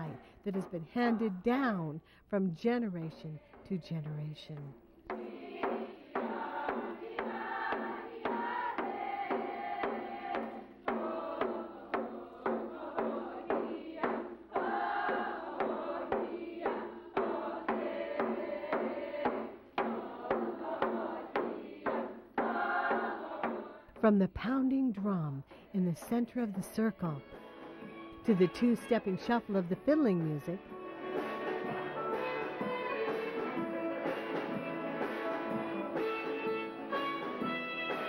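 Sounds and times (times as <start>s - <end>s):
frame drums beating: 3.1s - 24.2s.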